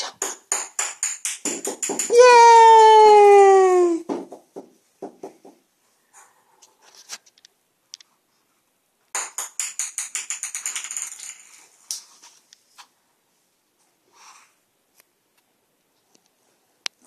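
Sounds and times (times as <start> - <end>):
plastic ball bouncing on tile floor: 0.0 - 3.1, 4.0 - 5.6, 9.1 - 12.0.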